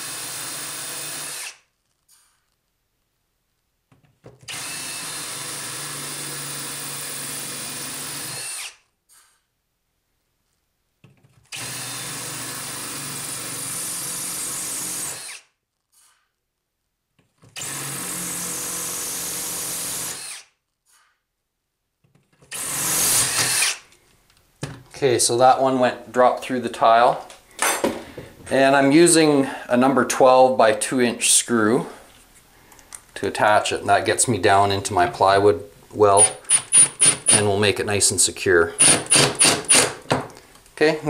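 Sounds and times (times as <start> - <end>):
hammer drill drilling tile: 0.0 - 2.4, 4.5 - 9.4, 11.5 - 16.3, 17.6 - 21.1, 22.5 - 23.9, 36.0 - 37.6, 38.7 - 40.3.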